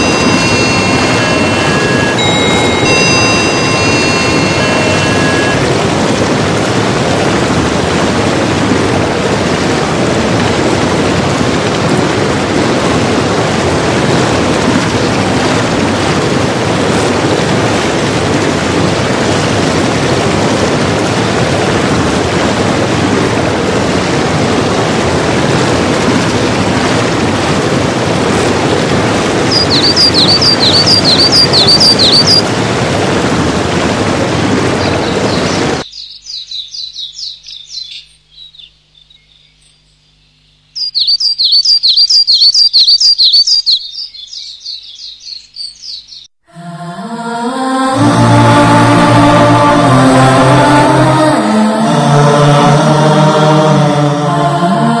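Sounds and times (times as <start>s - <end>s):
high chirps: 0.0s - 5.6s, 29.5s - 32.4s, 40.7s - 46.3s
steady loud rushing noise: 0.0s - 35.9s, 46.5s - 55.0s.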